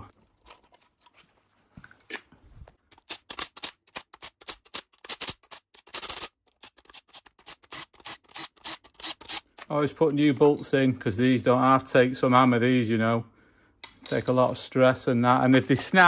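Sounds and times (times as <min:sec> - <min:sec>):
ratchet wrench clicking: 0:03.0 - 0:09.7.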